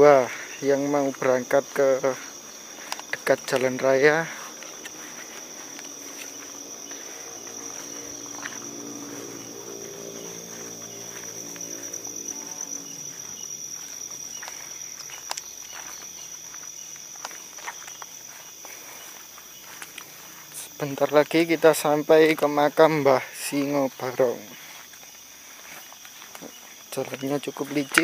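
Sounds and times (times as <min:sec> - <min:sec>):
crickets trilling: 0:00.0 - 0:28.0
snaps and steps in undergrowth: 0:01.1 - 0:12.0, 0:12.6 - 0:21.3, 0:23.5 - 0:28.0
low hum: 0:04.9 - 0:14.2.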